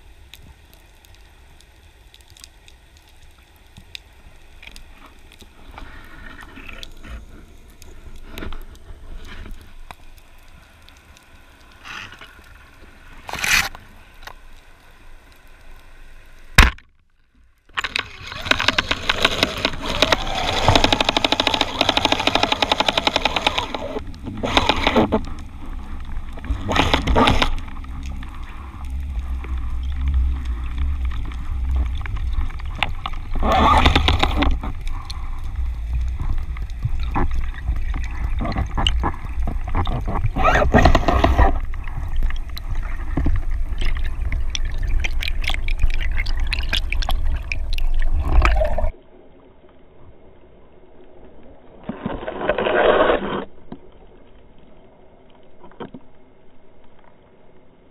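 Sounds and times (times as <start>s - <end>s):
underwater rush of water: 17.7s - 56.8s
gurgling bubbles: 18.0s - 48.9s.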